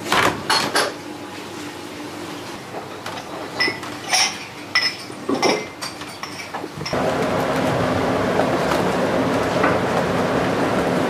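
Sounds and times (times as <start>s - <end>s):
dishes and utensils clinking: 3.0s - 7.0s.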